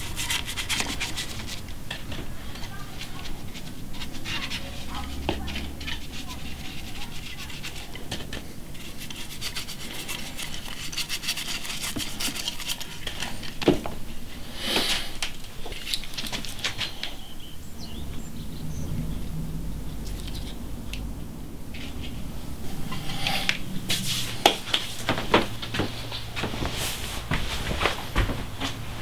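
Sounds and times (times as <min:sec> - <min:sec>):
wood rasp: 0:00.0 - 0:02.0, 0:02.7 - 0:13.6
rubbing and scraping wood: 0:00.0 - 0:17.2, 0:21.7 - 0:29.0.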